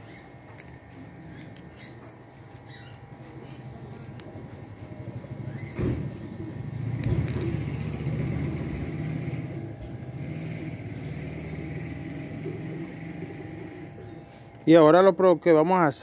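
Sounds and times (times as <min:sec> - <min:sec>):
vehicle engine rumbling: 0:02.8 - 0:14.6.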